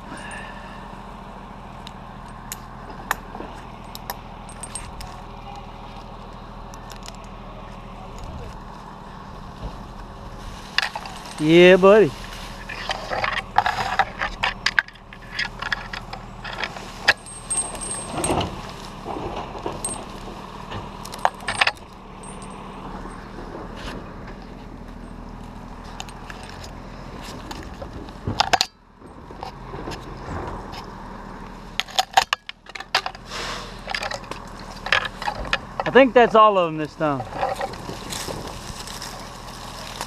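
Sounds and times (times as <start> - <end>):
branches knocking and scraping: 1.9 - 40.0
metal climbing hardware jingling: 2.2 - 5.3, 10.7 - 23.4, 24.9 - 26.6, 33.9 - 36.5.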